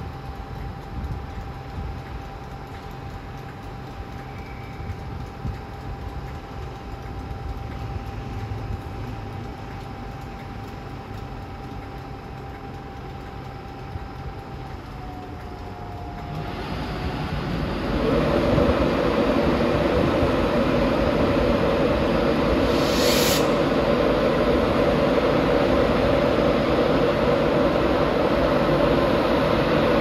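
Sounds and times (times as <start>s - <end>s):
locomotive hum and whine: 0.0s - 30.0s
rushing noise: 16.6s - 30.0s.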